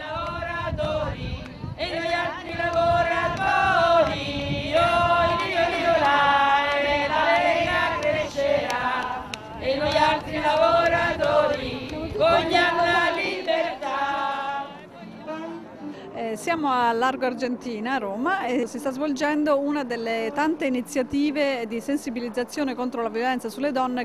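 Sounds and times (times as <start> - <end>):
women singing a chant: 0.0 - 14.8.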